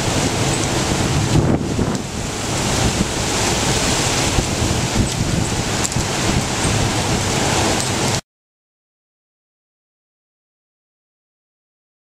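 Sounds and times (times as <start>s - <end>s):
sea surf breaking: 0.0s - 8.2s
wind buffeting microphone: 0.0s - 8.2s.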